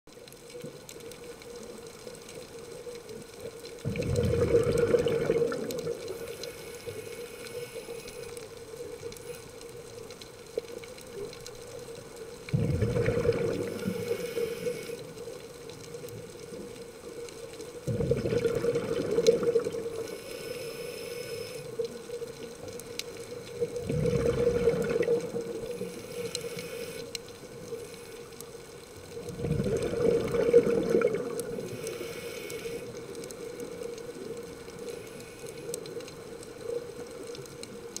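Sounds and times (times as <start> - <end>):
exhaled bubbles rushing: 3.8 - 6.2, 12.5 - 14.1, 17.8 - 20.0, 23.5 - 26.0, 29.2 - 31.8
diver breathing through regulator: 4.4 - 8.4, 12.6 - 15.2, 17.9 - 21.9, 23.9 - 28.4, 31.6 - 33.1.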